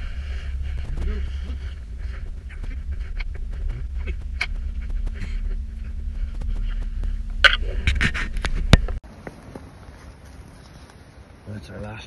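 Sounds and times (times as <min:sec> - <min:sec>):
wind buffeting microphone: 0:00.0 - 0:09.0.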